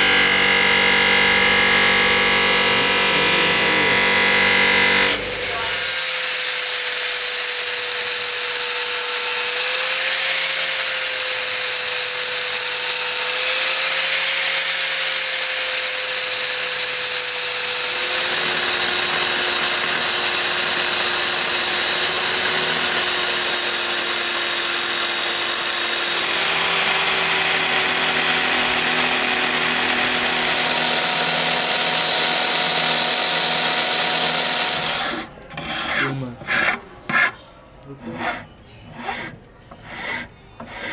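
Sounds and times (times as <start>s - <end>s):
belt sander running: 0.0s - 36.0s
angle grinder whine: 0.0s - 36.8s
hand file on wood: 1.7s - 6.4s, 26.2s - 37.4s, 38.0s - 40.9s.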